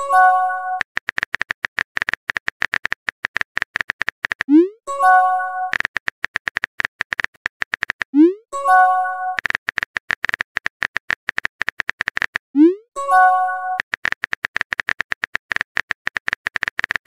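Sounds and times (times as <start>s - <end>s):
phone keyboard typing clicks: 0.0s - 12.4s, 13.2s - 17.0s
message notification chime: 8.6s - 9.4s.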